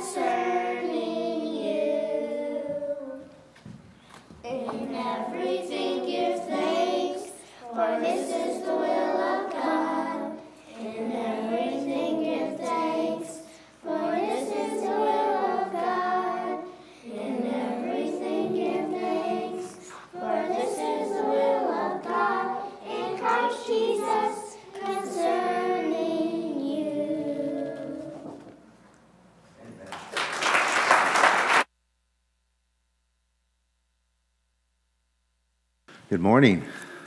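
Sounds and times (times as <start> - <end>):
young children singing: 0.0 - 3.5, 4.4 - 28.7.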